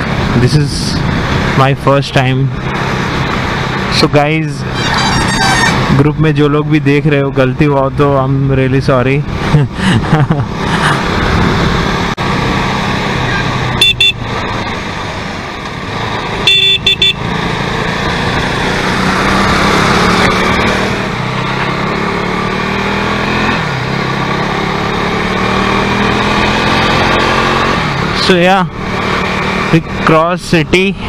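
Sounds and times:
vehicle horn toots: 0:04.7 - 0:05.8, 0:13.8 - 0:14.2, 0:16.4 - 0:17.2.

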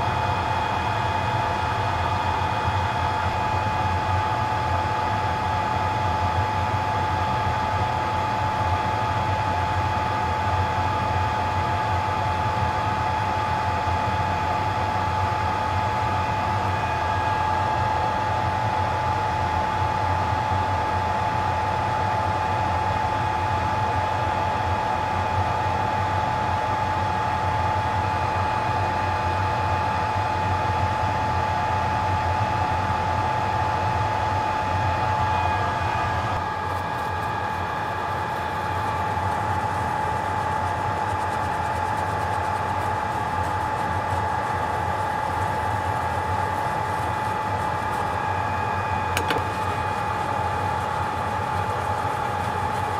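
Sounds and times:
hot-air blower whirring: 0:00.0 - 0:52.9
constant whine: 0:33.4 - 0:52.9.

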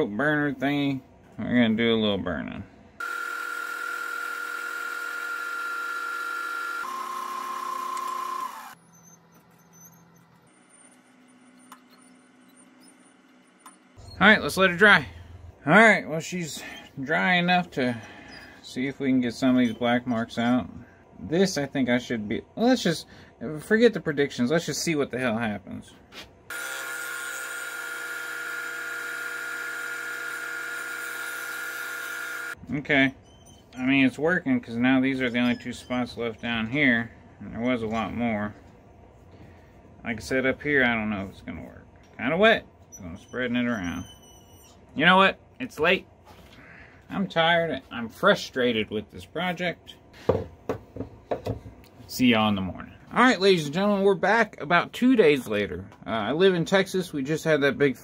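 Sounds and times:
wood lathe whining: 0:03.0 - 0:08.8, 0:26.5 - 0:32.6.

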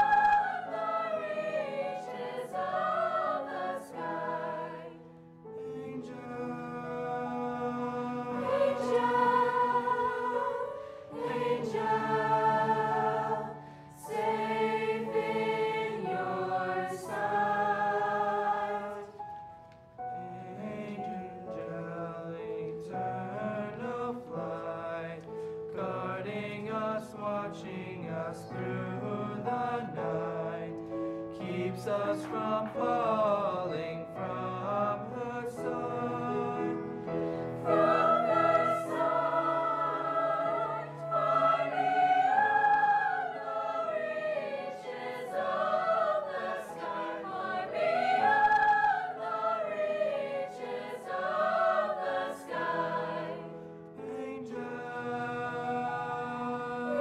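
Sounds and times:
choir singing in harmony: 0:00.0 - 0:57.0.

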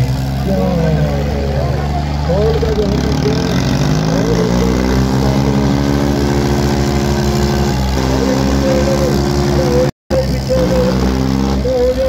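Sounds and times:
tractor diesel engine: 0:00.0 - 0:12.0
people shouting: 0:06.9 - 0:09.8.

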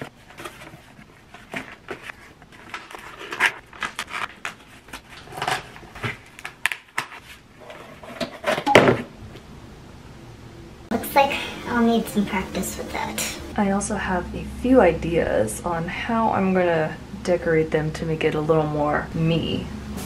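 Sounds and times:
cardboard box being folded: 0:00.0 - 0:06.4.

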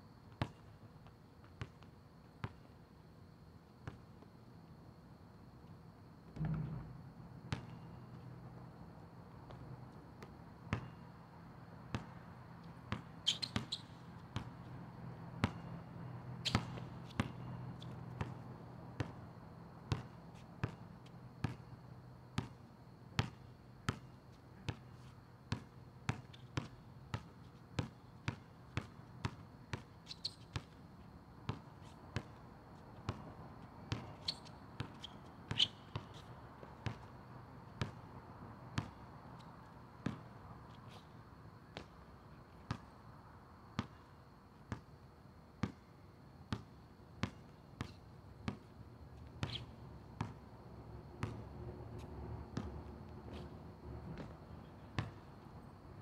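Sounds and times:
faint steady hum: 0:00.0 - 0:56.0
basketball bouncing on asphalt: 0:00.3 - 0:02.7, 0:03.8 - 0:04.3, 0:06.4 - 0:08.7, 0:10.2 - 0:11.1, 0:11.9 - 0:22.6, 0:23.2 - 0:30.8, 0:31.5 - 0:32.4, 0:33.0 - 0:40.5, 0:41.7 - 0:42.1, 0:42.7 - 0:43.0, 0:43.8 - 0:44.9, 0:45.6 - 0:45.9, 0:46.5 - 0:51.6, 0:52.4 - 0:53.5, 0:54.1 - 0:55.4.

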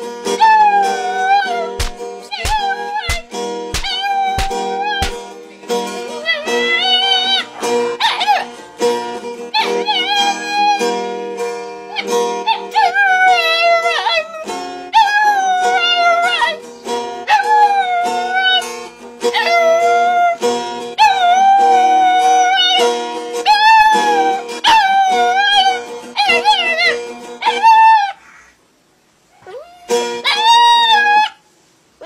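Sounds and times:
music accompaniment: 0:00.0 - 0:12.9, 0:14.2 - 0:27.4
dog howling: 0:00.4 - 0:03.2, 0:03.8 - 0:05.1, 0:06.2 - 0:08.5, 0:09.6 - 0:10.9, 0:12.0 - 0:16.6, 0:17.3 - 0:18.6, 0:19.3 - 0:20.4, 0:21.0 - 0:22.8, 0:23.4 - 0:28.2, 0:29.4 - 0:31.4.

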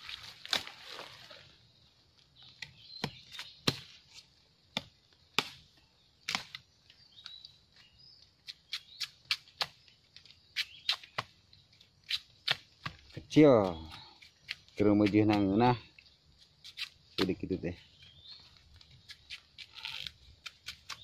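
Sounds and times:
blade chopping bamboo: 0:02.6 - 0:04.1, 0:04.7 - 0:06.6, 0:12.0 - 0:15.6, 0:19.0 - 0:21.0.

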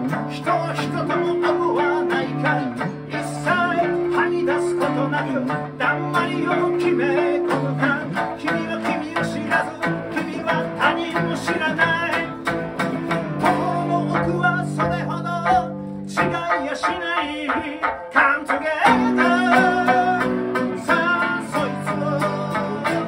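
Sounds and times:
acoustic guitars strummed: 0:00.0 - 0:23.0
man singing: 0:00.0 - 0:23.0
sanshin playing: 0:00.4 - 0:09.2.

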